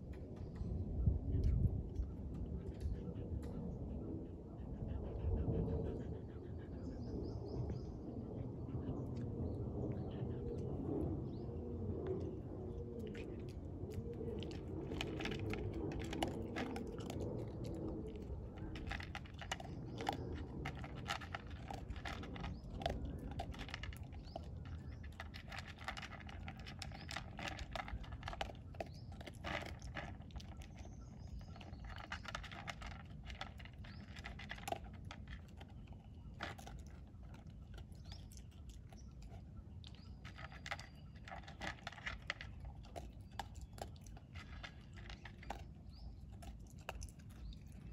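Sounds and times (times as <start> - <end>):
dog chewing and crunching: 12.2 - 47.9.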